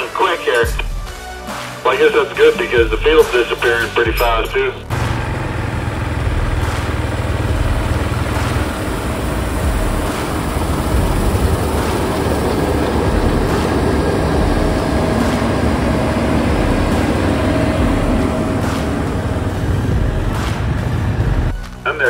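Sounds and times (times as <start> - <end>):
combine engine hum: 0.0 - 22.0
threshing machinery noise: 4.8 - 22.0.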